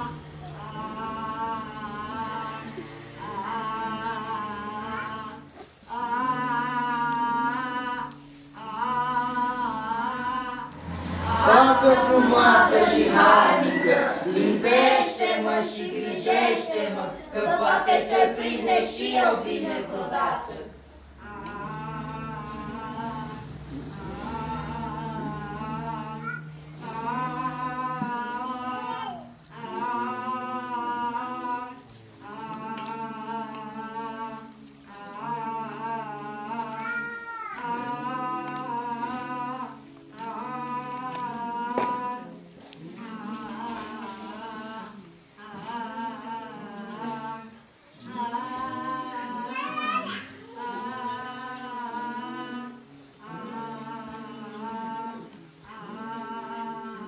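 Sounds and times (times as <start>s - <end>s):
person humming a slow tune: 0.0s - 57.0s
girl humming: 20.8s - 29.5s.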